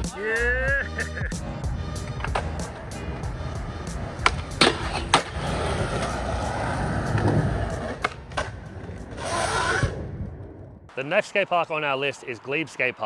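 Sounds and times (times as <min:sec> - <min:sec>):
skateboard wheels rumbling: 0:01.4 - 0:10.9
skateboard clacking on ground: 0:04.1 - 0:05.4.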